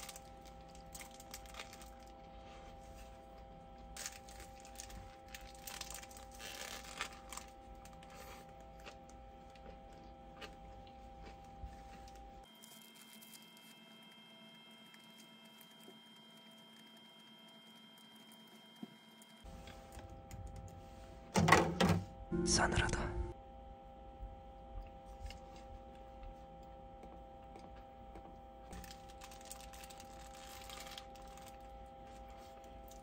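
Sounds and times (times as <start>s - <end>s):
steady electrical hum: 0.0s - 13.9s, 19.4s - 33.0s
high steady tone: 22.3s - 23.4s.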